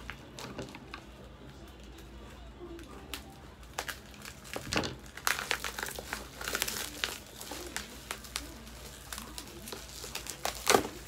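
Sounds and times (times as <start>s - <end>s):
packaging crinkling and rustling: 2.7s - 11.0s.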